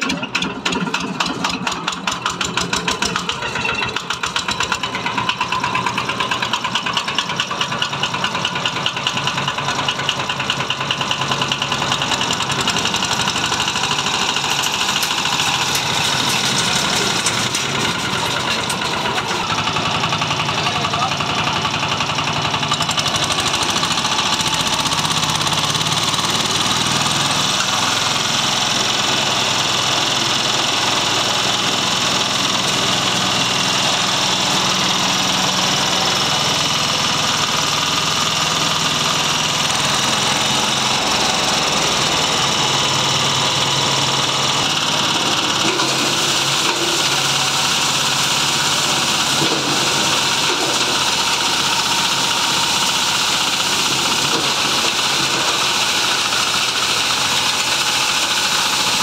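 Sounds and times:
stone crusher clatter: 0.0s - 29.6s, 44.6s - 59.0s
diesel engine running: 0.0s - 59.0s.

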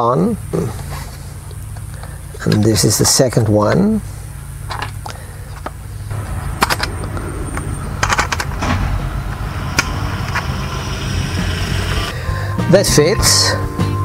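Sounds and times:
steady low rumble: 0.2s - 12.6s
sharp clicks and knocks: 4.7s - 12.1s.

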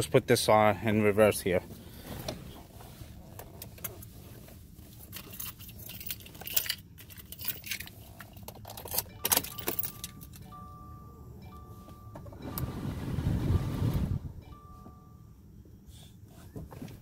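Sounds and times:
car keys jangling: 4.8s - 10.5s
car warning chime beeps: 9.0s - 15.8s.

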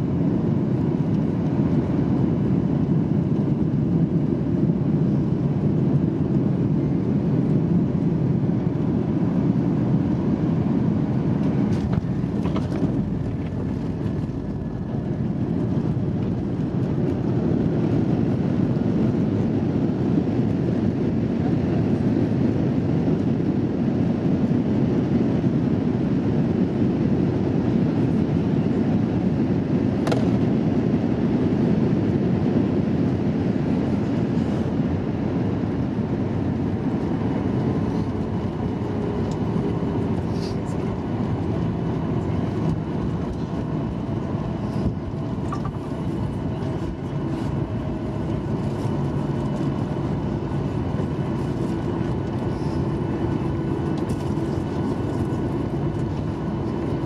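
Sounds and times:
airplane cabin low rumble: 0.0s - 57.0s.

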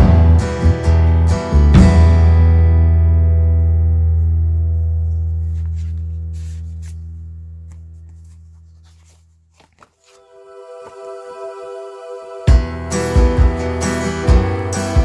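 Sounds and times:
paper rustling: 4.8s - 11.2s
low held music chord: 10.2s - 15.0s.

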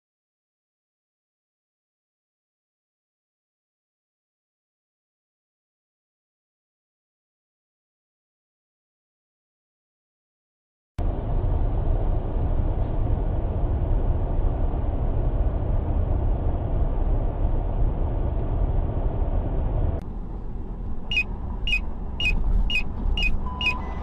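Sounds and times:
car driving rumble: 11.0s - 24.0s
turn signal ticking: 20.0s - 24.0s.

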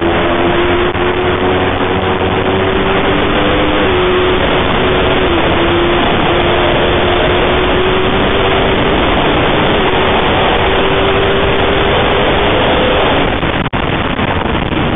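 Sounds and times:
motorcycle engine running hard: 0.0s - 14.9s
wind rush: 0.0s - 14.9s.

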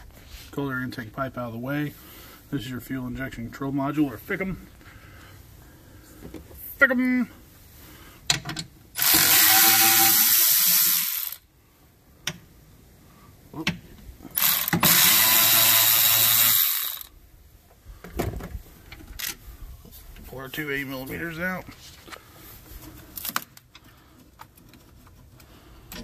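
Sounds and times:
electric ratchet spinning: 9.0s - 11.5s, 14.3s - 17.1s.

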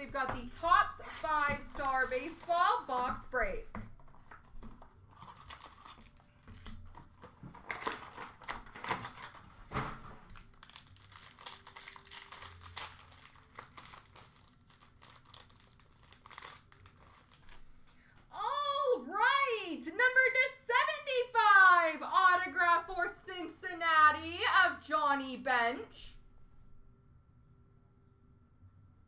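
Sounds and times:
plastic wrapper crumpling and tearing: 1.0s - 3.2s, 4.0s - 18.0s.

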